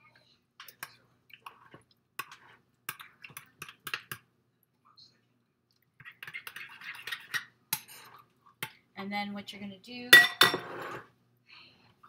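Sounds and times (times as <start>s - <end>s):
spoon stirring sauce: 0.0s - 4.3s, 5.8s - 8.8s.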